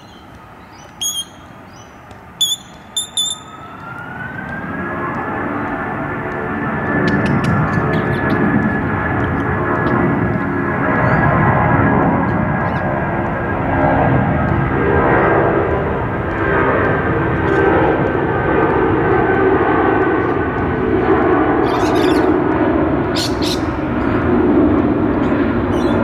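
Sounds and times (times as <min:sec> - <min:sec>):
engine drone: 0:00.0 - 0:26.0
low rumbling noise: 0:00.0 - 0:26.0.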